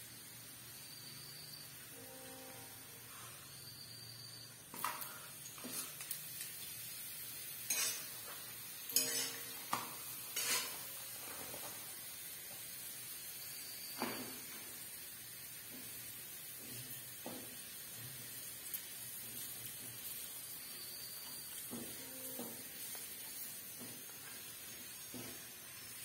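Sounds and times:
food sizzling in hot oil: 0.0 - 26.0
metal spatula scraping pan: 7.6 - 8.2, 8.9 - 9.7, 10.3 - 10.9.

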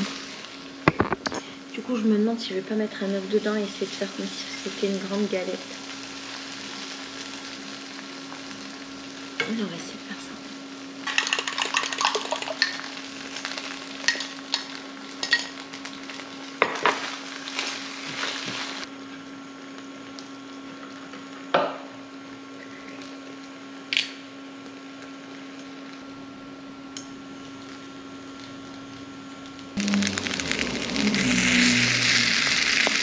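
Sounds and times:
food sizzling in a pan: 0.0 - 26.0, 27.1 - 33.0
steady hum: 24.4 - 33.0.

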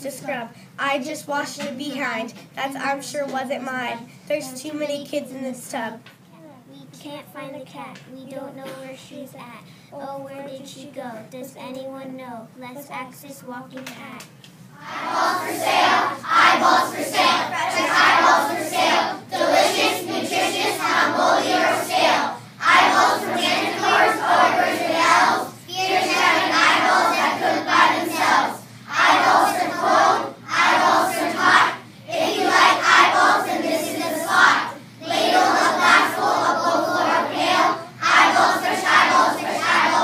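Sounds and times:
children reciting in unison: 14.8 - 40.0.

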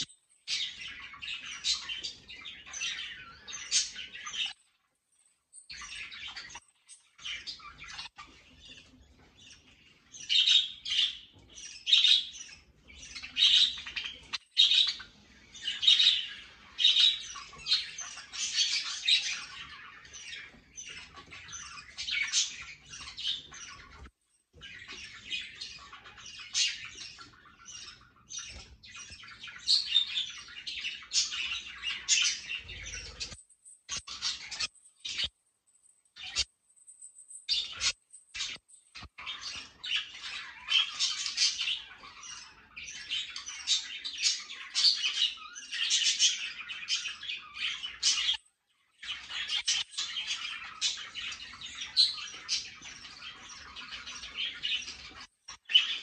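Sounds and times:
budgerigars chattering and chirping: 0.0 - 4.9, 5.6 - 35.3, 36.1 - 36.5, 37.4 - 56.0.

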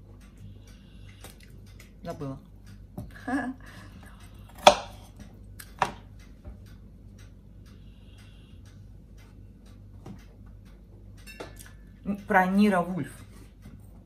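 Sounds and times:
faint light ticking: 5.2 - 13.8.

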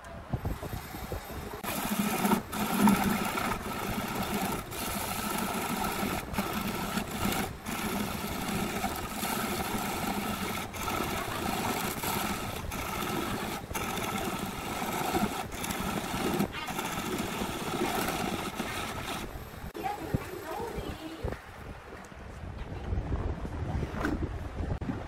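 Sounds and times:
turning tool cutting wood: 1.0 - 19.8
lathe running hum: 1.1 - 19.8.

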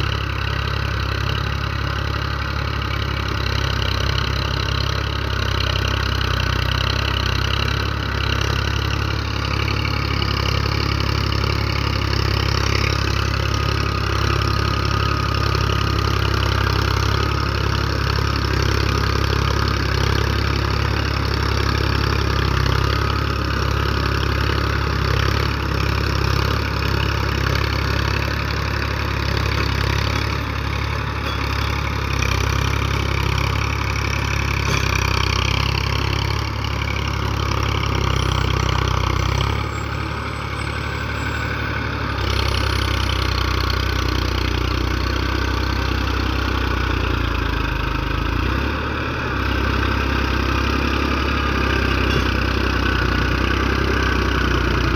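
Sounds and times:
tractor diesel engine under load: 0.0 - 54.9.

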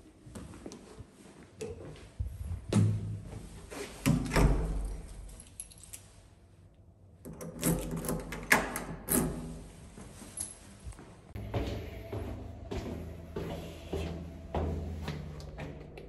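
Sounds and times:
keys jangling: 4.7 - 6.2.

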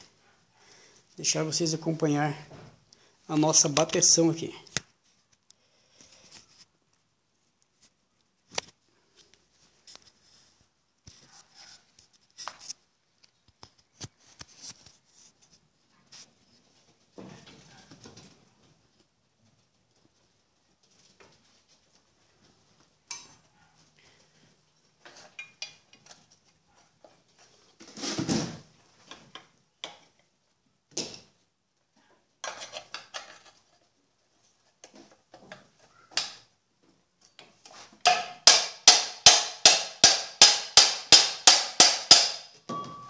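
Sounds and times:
hammer ringing metal strikes: 38.9 - 43.0.

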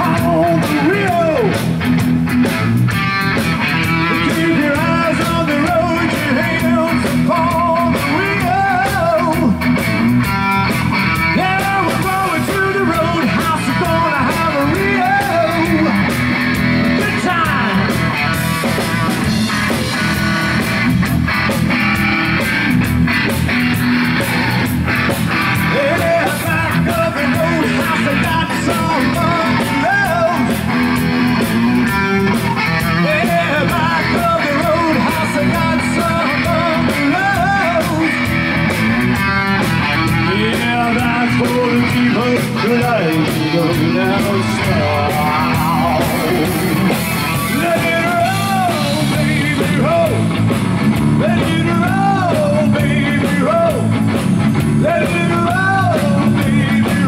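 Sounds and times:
person singing: 0.0 - 1.6, 3.6 - 9.6, 11.2 - 18.8, 25.4 - 39.3, 39.9 - 50.4, 51.2 - 54.0, 54.8 - 57.0
electric guitar bending notes: 0.0 - 57.0
live rock band: 0.0 - 57.0.

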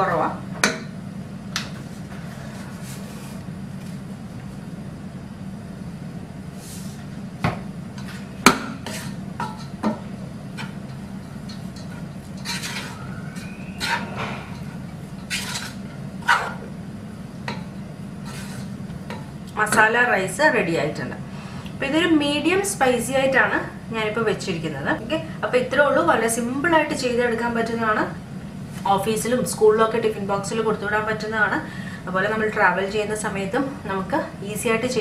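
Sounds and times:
steady low hum: 0.0 - 35.0
spatula scraping rice in pot: 8.0 - 9.7, 11.6 - 16.6, 18.2 - 18.8.

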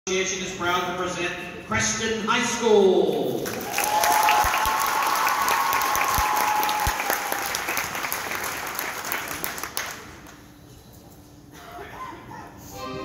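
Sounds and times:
audience applauding: 3.4 - 10.4
high-pitched cheer: 3.6 - 8.0.

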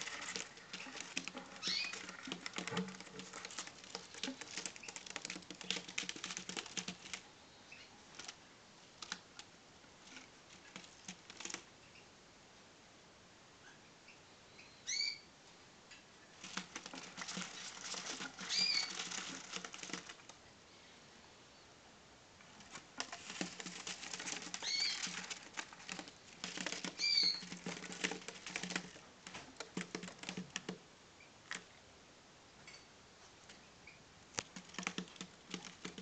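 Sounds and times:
birds scrabbling and fluttering: 0.0 - 8.4, 10.0 - 12.0, 16.2 - 20.4, 22.4 - 30.8, 33.4 - 36.0
bird chirps: 1.6 - 2.0, 7.4 - 8.0, 13.6 - 15.3, 24.6 - 25.0, 27.0 - 27.4.

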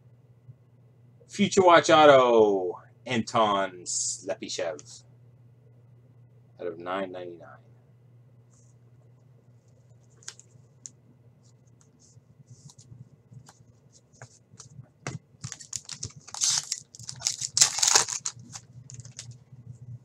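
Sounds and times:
foil pack ripping open: 15.4 - 19.3.

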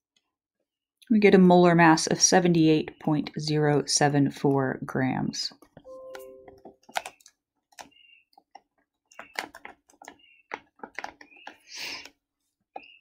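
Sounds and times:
keys clicking: 5.8 - 11.5.

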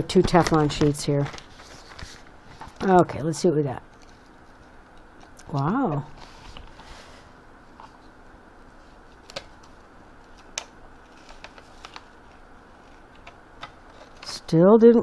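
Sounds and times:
low room hiss: 0.0 - 15.0
plastic sheet clicks and crinkles: 0.1 - 2.9, 9.1 - 14.5.

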